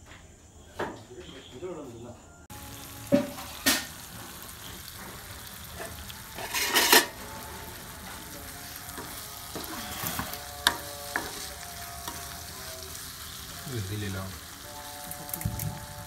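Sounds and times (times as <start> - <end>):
food sizzling in pan: 2.5 - 16.0
spatula stirring: 4.4 - 15.3.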